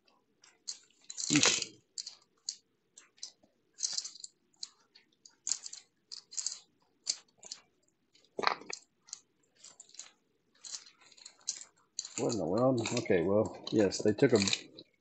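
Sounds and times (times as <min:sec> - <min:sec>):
plastic bag crinkling and rustling: 0:12.1 - 0:14.8.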